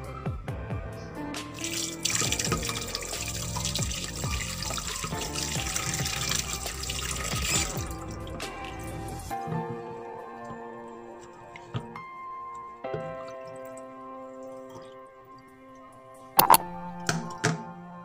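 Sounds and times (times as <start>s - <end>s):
background music: 0.0s - 18.0s
tap water running into sink: 1.6s - 9.4s.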